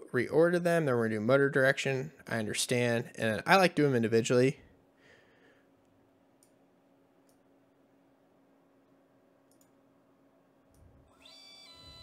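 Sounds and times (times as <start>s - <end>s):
faint room hum: 0.0s - 12.0s
computer mouse clicks: 7.2s - 7.4s, 9.5s - 9.8s.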